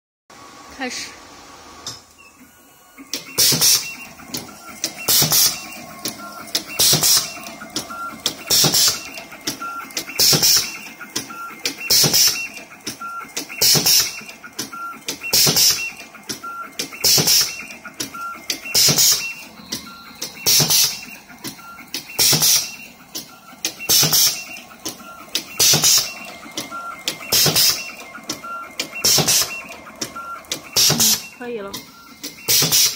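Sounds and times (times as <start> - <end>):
short motor whines: 1.8 - 12.7, 14.9 - 32.9
machine clicks: 3.0 - 32.9
pneumatic air hiss: 32.5 - 32.9.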